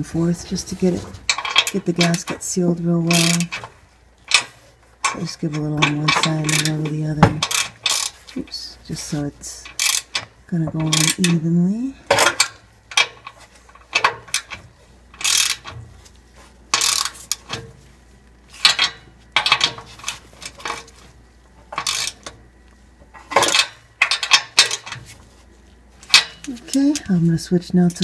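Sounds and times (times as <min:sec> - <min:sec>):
wrench clicking on nuts: 0:01.3 - 0:02.4, 0:03.1 - 0:03.7, 0:04.3 - 0:08.3, 0:09.6 - 0:11.4, 0:15.2 - 0:15.7, 0:16.7 - 0:17.6, 0:18.6 - 0:20.8, 0:21.8 - 0:22.4, 0:23.3 - 0:25.0, 0:26.1 - 0:27.1.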